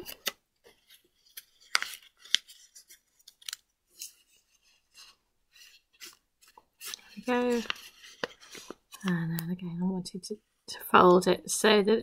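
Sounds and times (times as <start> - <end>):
paper crinkling: 0.0 - 9.3.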